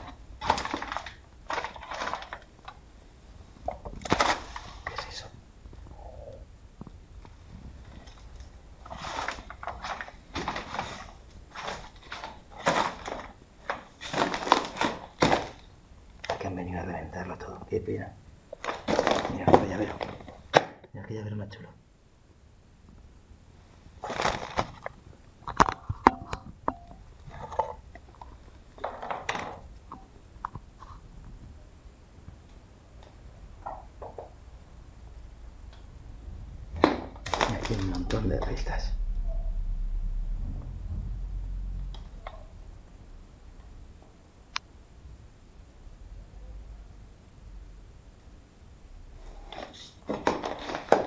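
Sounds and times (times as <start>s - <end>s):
handling and paper rustling: 0.0s - 2.8s, 3.6s - 5.3s, 7.4s - 16.5s, 18.5s - 20.6s, 24.0s - 25.0s, 37.2s - 38.6s, 49.3s - 51.0s
footsteps crunching over debris: 37.2s - 38.7s.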